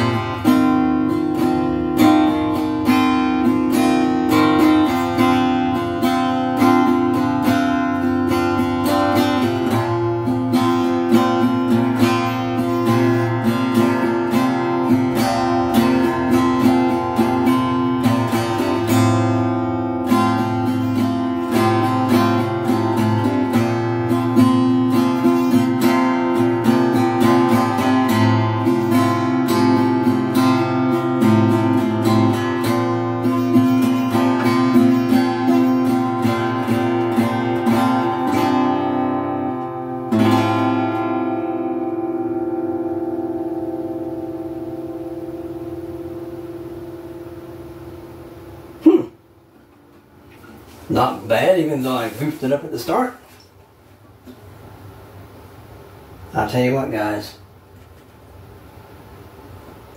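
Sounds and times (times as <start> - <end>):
acoustic guitar strumming: 0.0 - 56.4.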